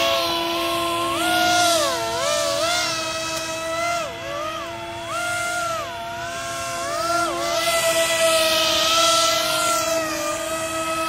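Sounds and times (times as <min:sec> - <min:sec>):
electric motors and fans whining: 0:00.0 - 0:11.0.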